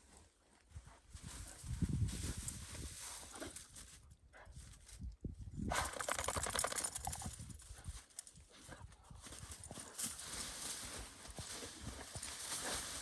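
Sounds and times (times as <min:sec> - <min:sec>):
paws crunching snow: 0:07.8 - 0:13.0.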